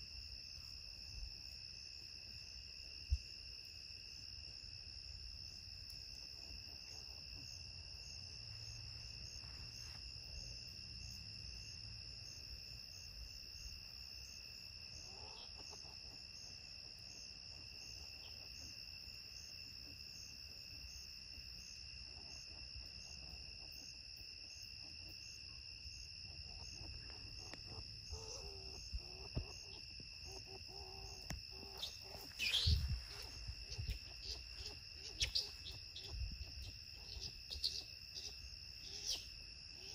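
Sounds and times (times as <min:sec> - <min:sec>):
night insects chirping: 0:00.0 - 0:39.9
skunks scuffling: 0:31.2 - 0:36.8
pulsing high chirp: 0:31.8 - 0:38.3.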